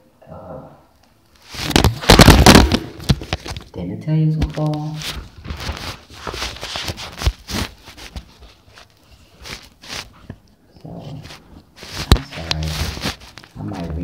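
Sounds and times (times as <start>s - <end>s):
fabric rubbing on microphone: 1.4s - 2.2s, 4.5s - 10.3s, 10.9s - 14.0s.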